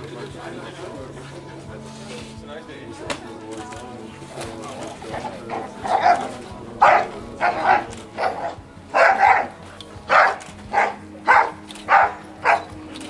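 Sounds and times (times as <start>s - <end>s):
dog barking: 5.9s - 9.5s, 10.1s - 12.7s.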